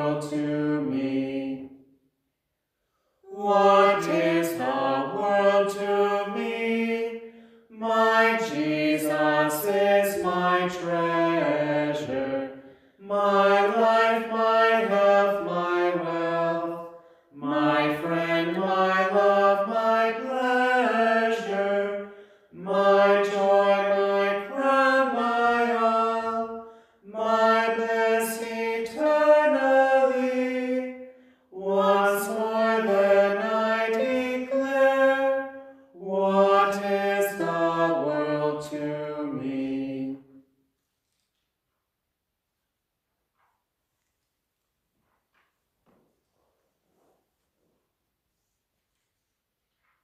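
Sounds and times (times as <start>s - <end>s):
person singing unaccompanied: 7.8s - 12.4s, 13.0s - 16.7s, 22.6s - 30.8s, 31.6s - 35.4s
singer breathing: 12.6s - 13.0s, 16.9s - 17.4s, 22.0s - 22.6s, 26.6s - 27.1s, 31.0s - 31.5s.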